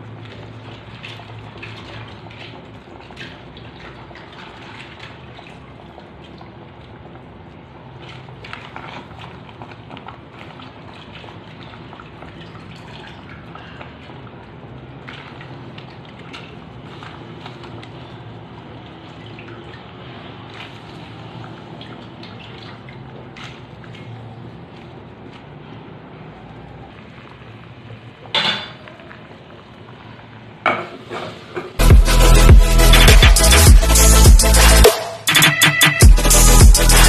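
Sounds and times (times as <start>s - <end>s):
water dripping and splashing: 0.0s - 30.6s
soup simmering and bubbling: 0.0s - 31.7s.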